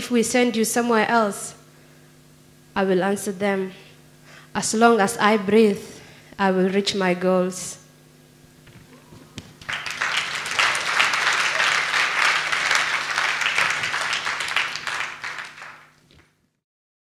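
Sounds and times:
audience applauding: 0:09.3 - 0:16.3.

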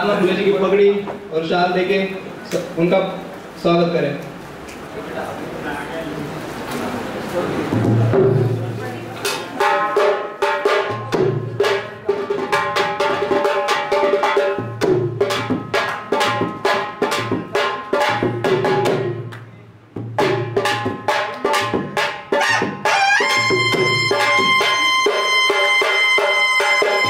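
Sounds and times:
rapid rhythmic drumming: 0:07.3 - 0:27.0.

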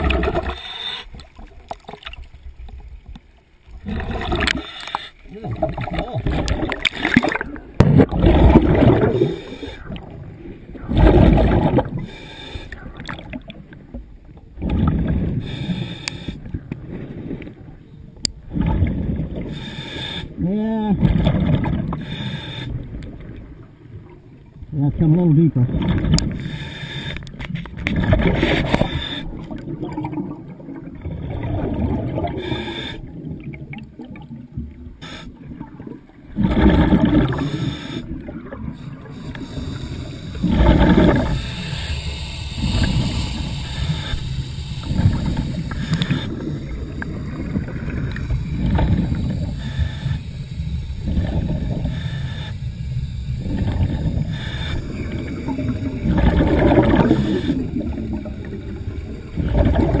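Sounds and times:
rushing exhaust bubbles underwater: 0:00.0 - 0:00.6, 0:03.7 - 0:04.6, 0:05.3 - 0:12.1, 0:14.4 - 0:15.6, 0:18.3 - 0:19.6, 0:20.8 - 0:22.1, 0:27.7 - 1:00.0
low rumble: 0:38.1 - 1:00.0.

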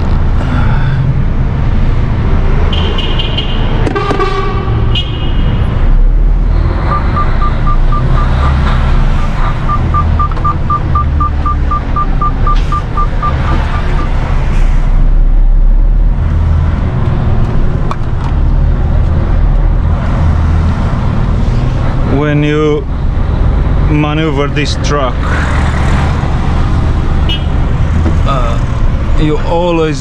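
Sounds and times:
diesel truck engine rumbling: 0:00.0 - 0:30.0
short electronic beeps: 0:06.9 - 0:08.4, 0:09.2 - 0:14.2.

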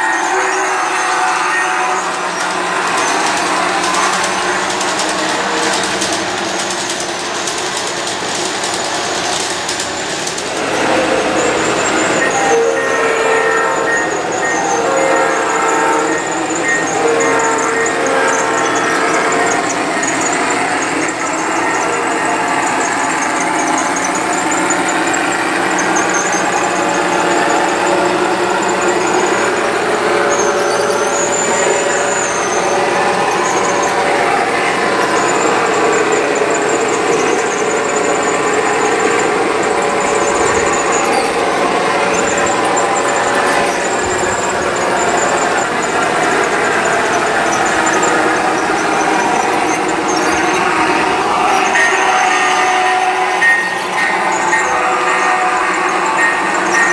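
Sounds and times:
model trains whining on metal track: 0:00.0 - 0:56.9.

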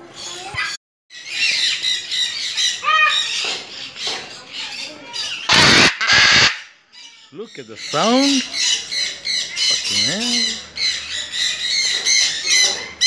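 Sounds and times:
macaws squawking: 0:05.1 - 0:06.7.

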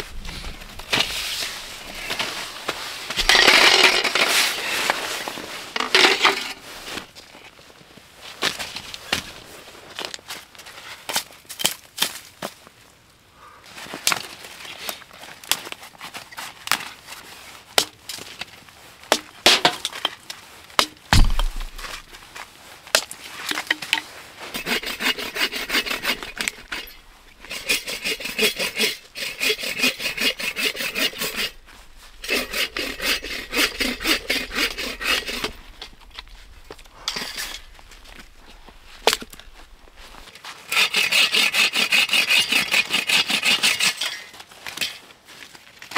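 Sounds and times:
hand saw cutting wood: 0:03.2 - 0:04.7, 0:24.5 - 0:44.3
heavy thump: 0:21.1 - 0:22.2.

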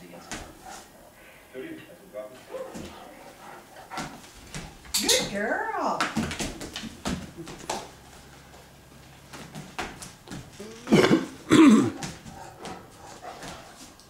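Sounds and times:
gruff vocal sounds: 0:10.6 - 0:11.9.

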